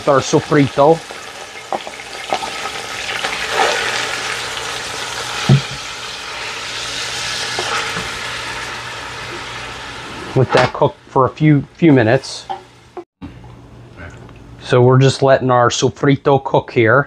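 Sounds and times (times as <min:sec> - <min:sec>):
garlic sizzling in oil: 0:00.0 - 0:10.4
loud knock: 0:05.5 - 0:05.8.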